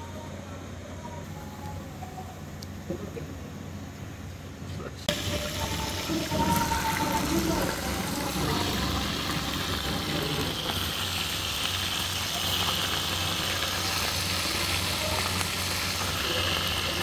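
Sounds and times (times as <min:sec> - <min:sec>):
fish deep-frying in oil: 0:05.1 - 0:17.0.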